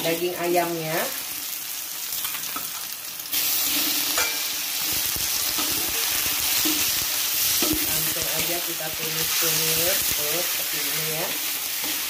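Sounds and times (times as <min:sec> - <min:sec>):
oil sizzling in a wok: 0:00.0 - 0:12.0
spatula scraping a pan: 0:03.4 - 0:12.0.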